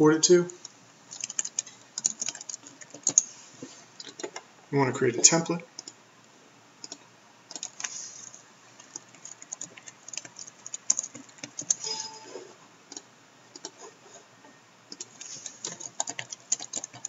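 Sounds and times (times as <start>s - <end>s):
keyboard typing: 1.1s - 3.3s, 5.8s - 6.0s, 6.8s - 13.9s, 14.9s - 17.0s.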